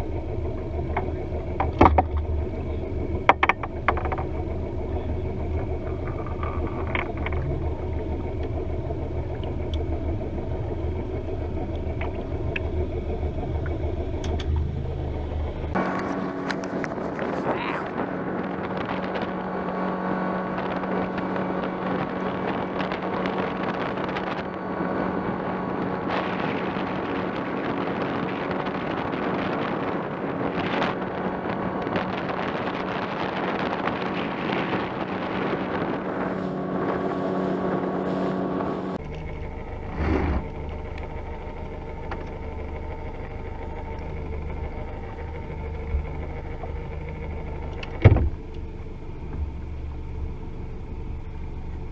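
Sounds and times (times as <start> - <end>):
outboard motor running: 0.0 - 51.9
wind: 0.0 - 51.9
water rushing: 11.4 - 51.9.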